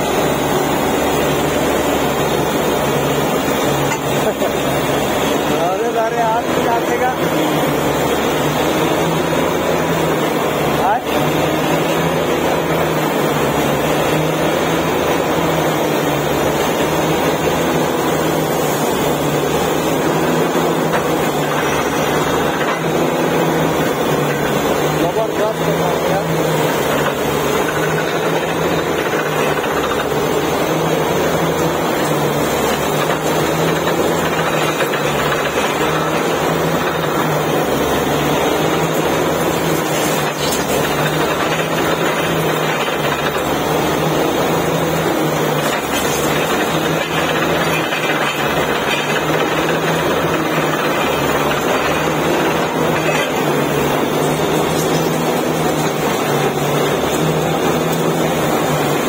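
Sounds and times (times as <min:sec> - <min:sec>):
drilling rig running: 0:00.0 - 0:59.0.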